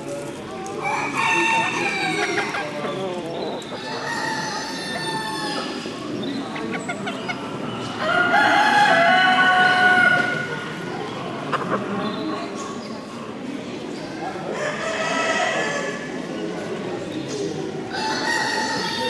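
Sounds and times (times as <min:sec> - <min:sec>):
roosters crowing: 0:00.8 - 0:03.0, 0:03.7 - 0:05.9, 0:08.0 - 0:10.5.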